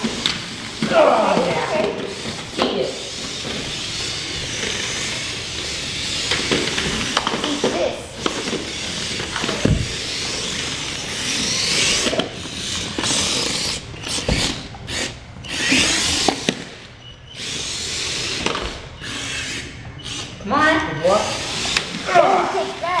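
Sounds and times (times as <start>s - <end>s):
toy cars knocking together: 0.0s - 14.6s
toy car tracks rattling: 0.0s - 16.8s, 21.2s - 23.0s
toy car electric motors whirring: 0.0s - 23.0s.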